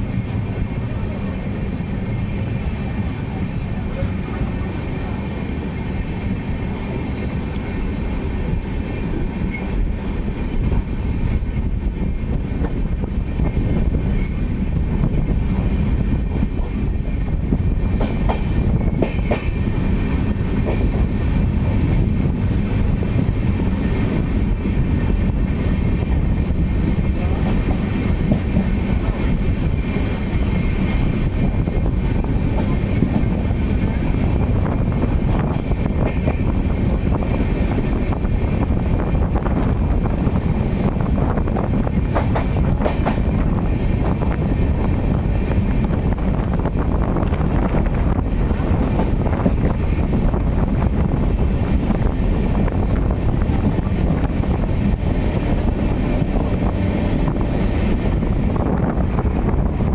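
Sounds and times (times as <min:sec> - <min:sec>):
steel wheels on rails: 0:00.0 - 0:59.9.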